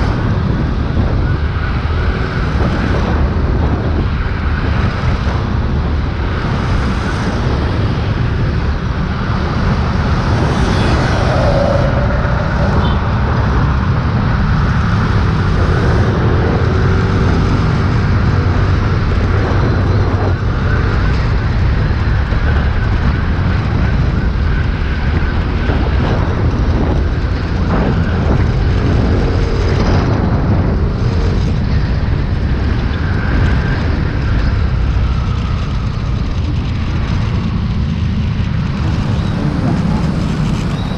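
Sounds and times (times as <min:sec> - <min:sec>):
road traffic: 0:00.0 - 0:40.9
tyre and wind noise: 0:00.0 - 0:40.9.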